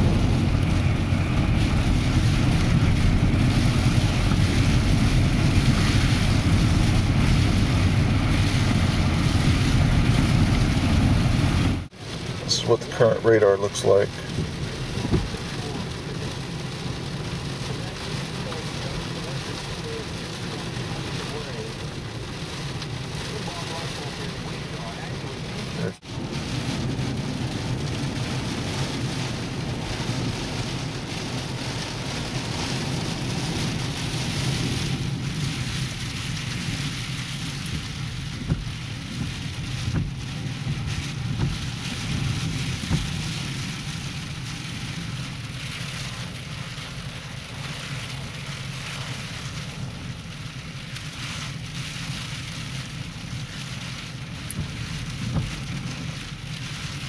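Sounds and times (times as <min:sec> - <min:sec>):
rain and wind lashing car: 0:00.0 - 0:57.0.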